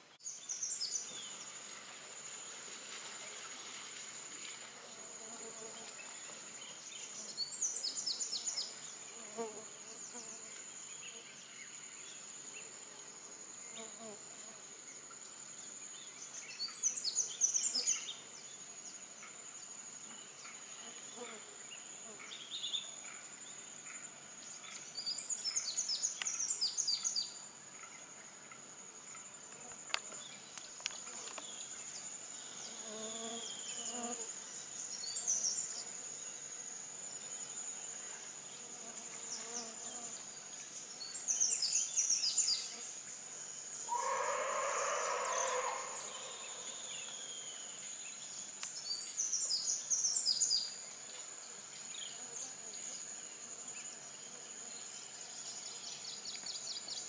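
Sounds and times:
insects droning: 0.0s - 57.0s
lower bird call: 43.9s - 47.2s.

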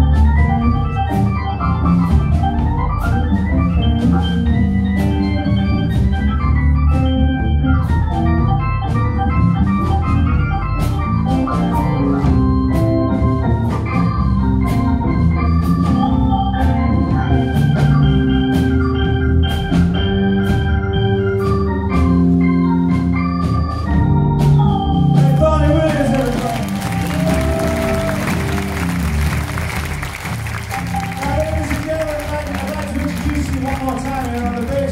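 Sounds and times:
organ chords and runs: 0.0s - 34.9s
steady drum beat: 23.7s - 34.9s.

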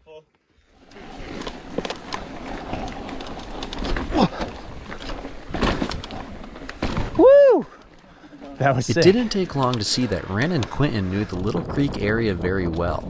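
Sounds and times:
bike tyres rolling: 0.6s - 13.0s
bike rattling and knocking: 1.0s - 7.2s
wind on microphone: 10.2s - 13.0s.

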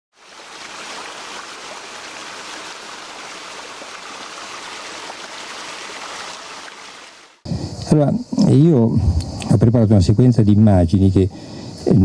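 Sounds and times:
stream flowing: 0.1s - 7.4s.

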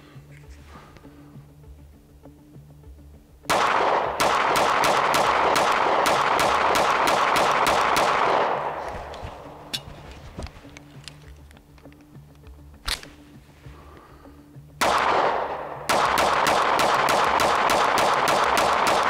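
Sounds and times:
pistol shots: 3.5s - 9.8s, 14.8s - 19.0s
sharp click: 10.7s - 13.2s.

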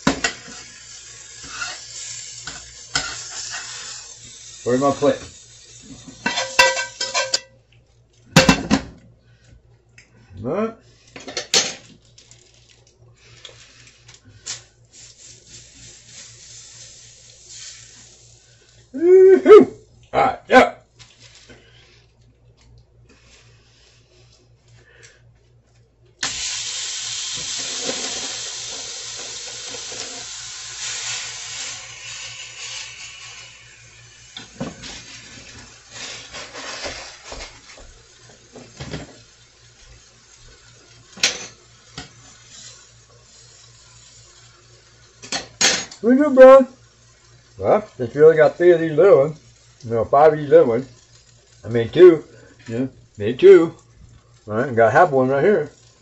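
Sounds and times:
utensil scraping skillet: 0.0s - 7.5s, 27.3s - 55.8s
clinks of utensils and dishes: 6.2s - 7.6s.

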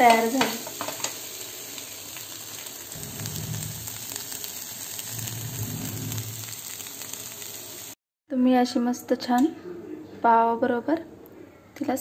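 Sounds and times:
eggs sizzling in oil: 0.0s - 8.0s
low hum: 5.0s - 6.6s.

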